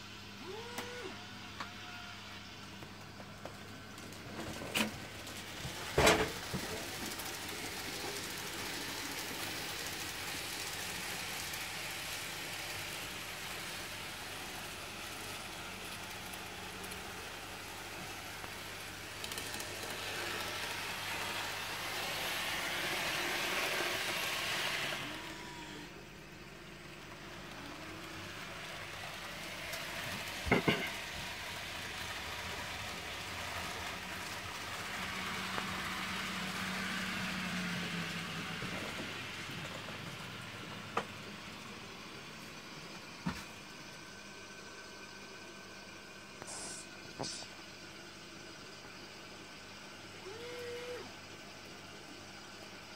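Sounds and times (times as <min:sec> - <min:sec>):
model train wheels rumbling: 0:03.3 - 0:26.2, 0:26.9 - 0:42.0.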